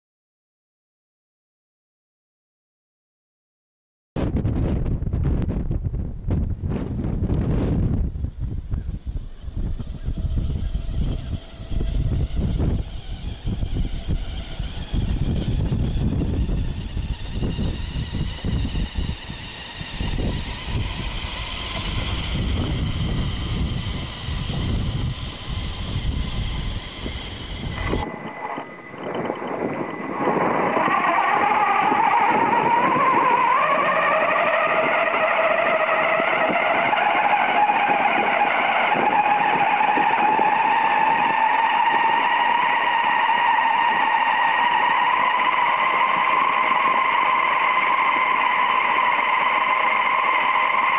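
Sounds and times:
toy truck motor whining: 7.3s - 50.9s.

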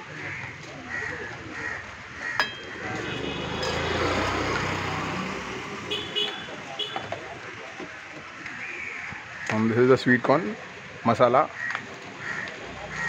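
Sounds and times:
vehicle engine passing: 1.6s - 7.7s.

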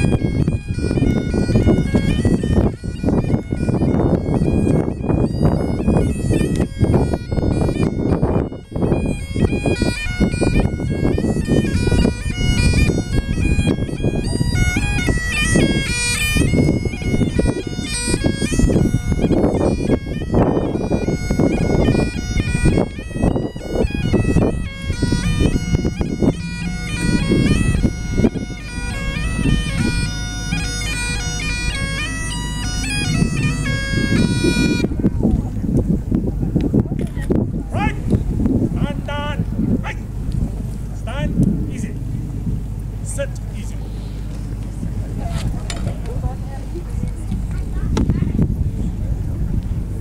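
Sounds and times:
bagpipes playing a tune: 0.0s - 35.3s
wind rumble on microphone: 0.0s - 50.0s.

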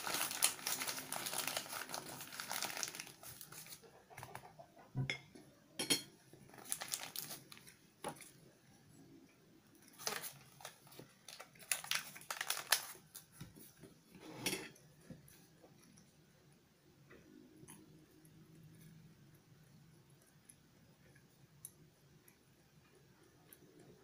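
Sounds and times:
paper wrapper crinkling: 0.0s - 3.9s, 6.5s - 8.3s, 9.9s - 13.5s.

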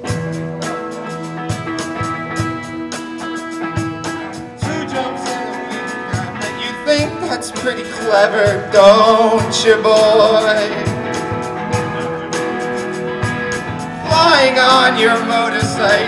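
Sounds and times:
drum kit beat: 0.0s - 16.0s
live rock band playing: 0.0s - 16.0s
male voices singing: 4.6s - 11.2s, 13.9s - 16.0s.

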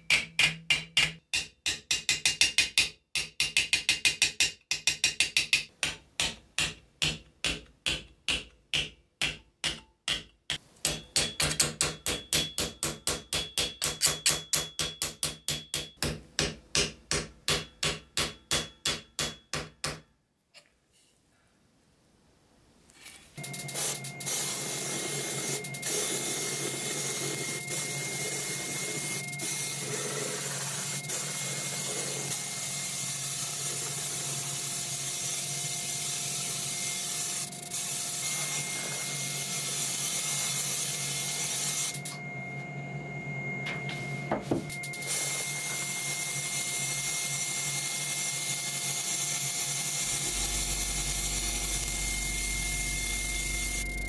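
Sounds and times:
high whine: 42.0s - 45.1s, 50.0s - 54.0s
deeper hum: 50.1s - 54.0s
low hum: 50.1s - 54.0s.

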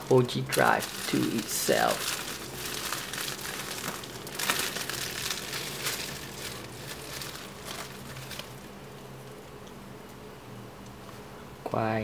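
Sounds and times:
bubble wrap crinkling: 0.0s - 9.6s.

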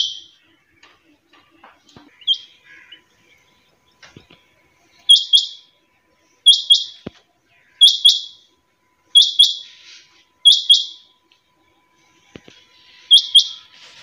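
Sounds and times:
quail double-note calls: 9.2s - 11.0s.

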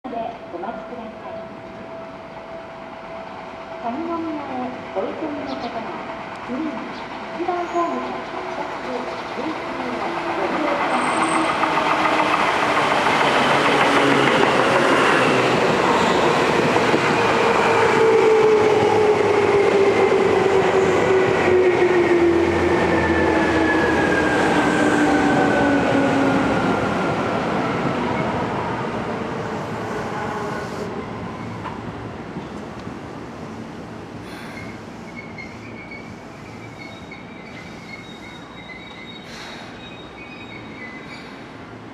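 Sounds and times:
train wheels on rails: 4.1s - 28.6s.

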